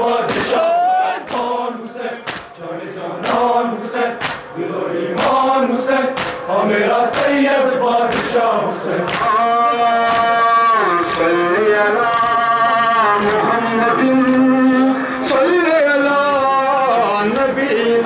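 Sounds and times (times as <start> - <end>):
men chanting together: 0.0 - 18.0
chest-beating cracks in unison: 0.3 - 0.6, 1.2 - 1.6, 2.2 - 2.6, 4.2 - 4.6, 6.1 - 6.5, 8.1 - 8.4, 9.1 - 9.3.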